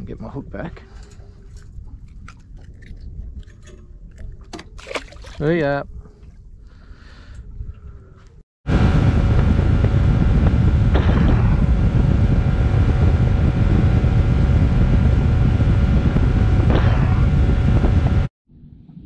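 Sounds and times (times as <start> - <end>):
wind on microphone: 0.0 - 18.3
rushing water: 4.5 - 5.6
outboard motor running: 8.7 - 18.3.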